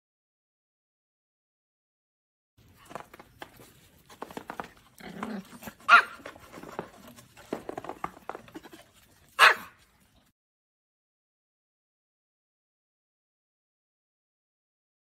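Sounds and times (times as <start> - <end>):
small dogs yapping: 2.8 - 10.0
loud sharp dog barks: 5.9 - 6.2, 9.4 - 9.8.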